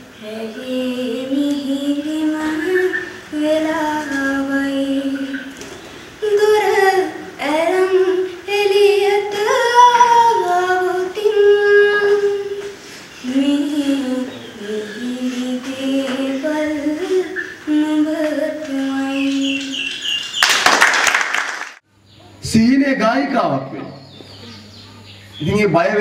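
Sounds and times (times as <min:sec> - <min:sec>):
girl singing slow melody: 0:00.0 - 0:19.9.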